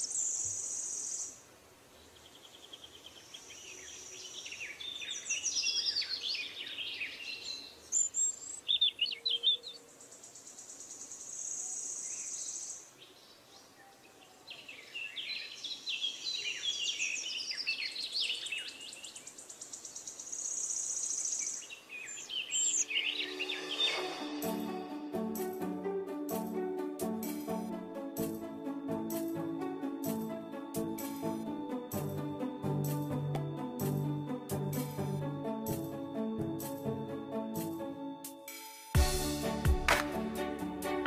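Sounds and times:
birds chirping: 2.0 - 25.1.

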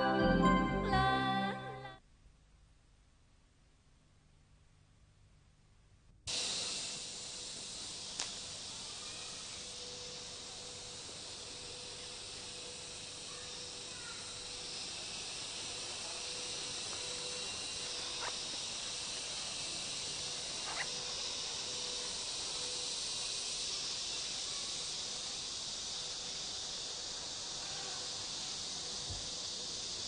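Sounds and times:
insects droning: 6.3 - 30.0.

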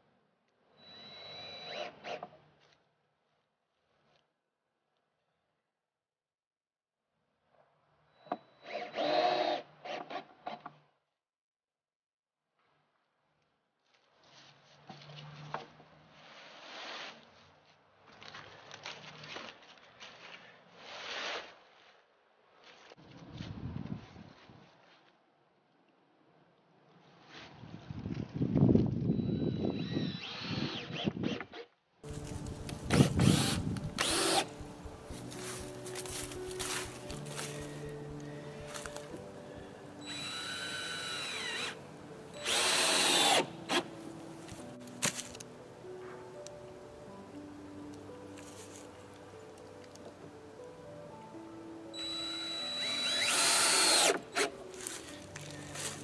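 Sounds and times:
cordless drill driving screws: 0.8 - 2.3, 8.6 - 10.5, 29.3 - 31.1, 32.8 - 34.6, 40.0 - 41.8, 42.4 - 43.9, 52.0 - 54.6
footsteps on dry leaves: 32.0 - 39.5, 43.9 - 45.5, 48.1 - 49.8, 54.4 - 56.0.

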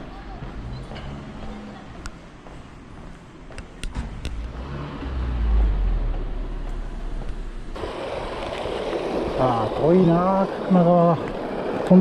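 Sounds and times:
car passing by: 4.0 - 12.0
rushing hiss: 7.6 - 12.0.

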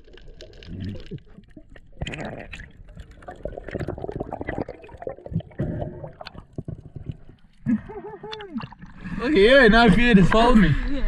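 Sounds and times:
small underwater clicks: 0.0 - 3.9
water gurgling underwater: 0.0 - 9.2.

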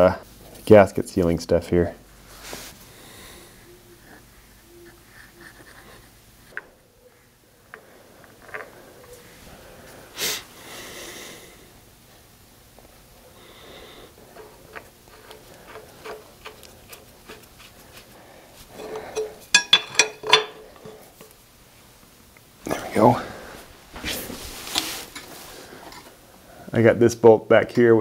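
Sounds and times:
wrench clinking on metal: 18.8 - 21.0.

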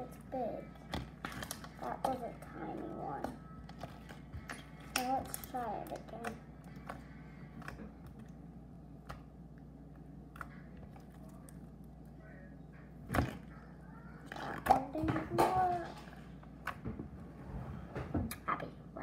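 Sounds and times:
sticky slime sounds: 0.0 - 9.3, 13.0 - 16.8.

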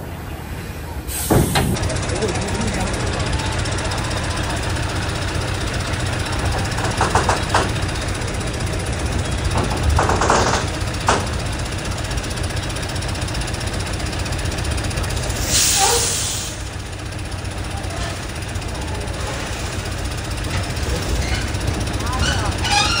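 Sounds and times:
diesel truck engine rumbling: 0.0 - 23.0
air hiss: 1.1 - 1.6, 15.4 - 16.6
metal clanks: 6.4 - 8.0, 9.3 - 11.7.

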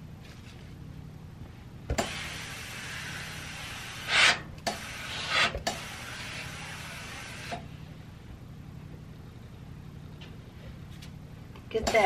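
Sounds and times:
steam iron hissing: 2.0 - 7.6.

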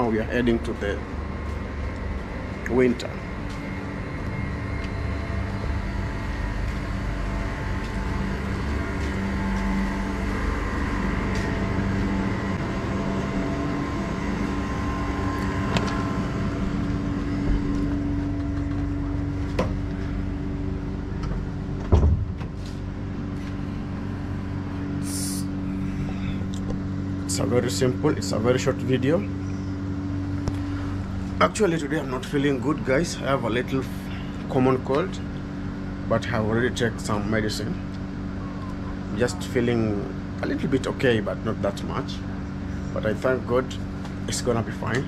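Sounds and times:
mechanical hum: 0.0 - 45.0
loud thump: 21.8 - 22.6.

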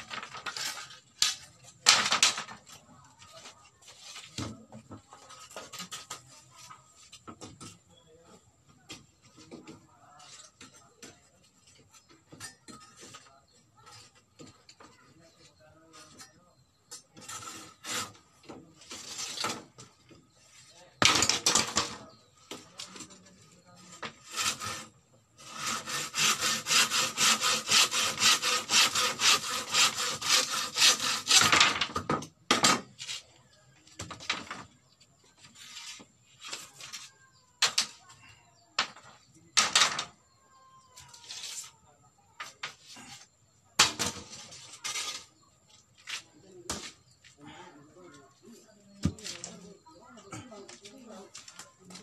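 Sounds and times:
knife scraping bamboo: 0.1 - 2.0, 5.1 - 7.2, 17.0 - 19.9, 23.8 - 31.8, 35.4 - 37.9, 41.0 - 43.2, 43.8 - 47.0.

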